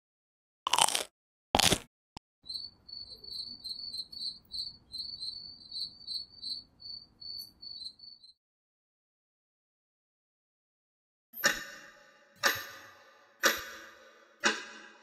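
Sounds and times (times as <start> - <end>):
crickets chirping: 2.4 - 8.3.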